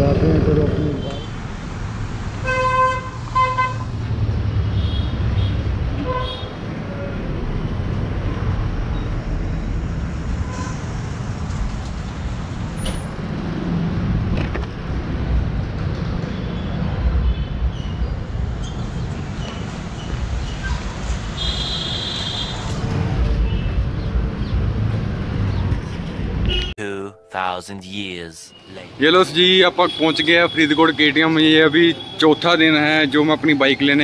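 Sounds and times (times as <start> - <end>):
vehicle engines rumbling: 0.0 - 26.7.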